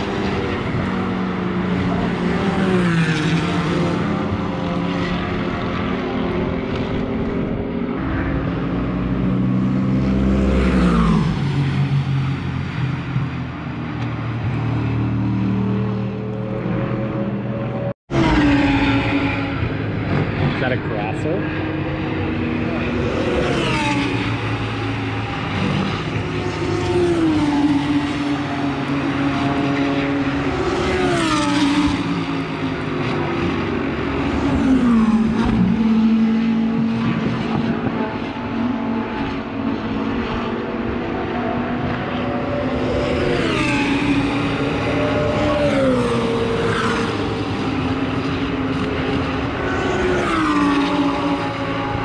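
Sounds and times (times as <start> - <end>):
racing car engines at full throttle: 0.0 - 52.0.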